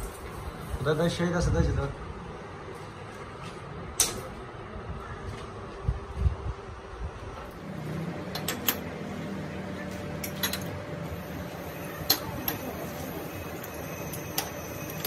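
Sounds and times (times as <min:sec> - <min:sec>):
low machine hum: 0:01.6 - 0:15.0
metallic clinks of steel parts: 0:10.2 - 0:10.8, 0:12.0 - 0:15.0.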